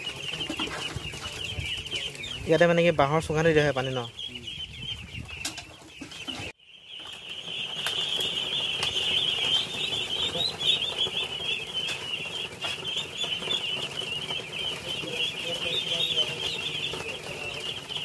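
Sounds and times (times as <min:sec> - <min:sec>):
ducklings peeping: 0:00.0 - 0:18.0.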